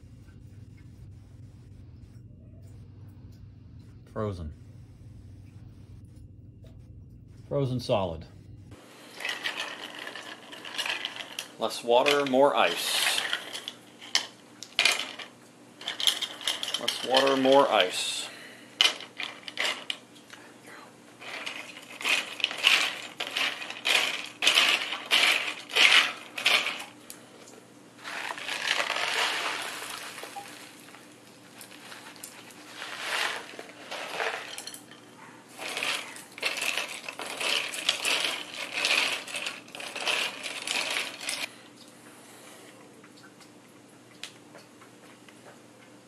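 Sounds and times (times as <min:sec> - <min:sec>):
crushed ice clinking against glass: 0:09.0 - 0:18.2, 0:21.2 - 0:26.9, 0:28.0 - 0:30.8, 0:31.6 - 0:41.5.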